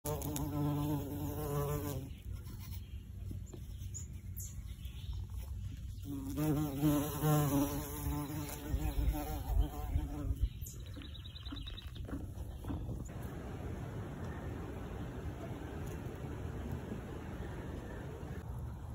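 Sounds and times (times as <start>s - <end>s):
bumblebee buzzing in flight: 0.1s - 2.2s, 6.0s - 10.6s.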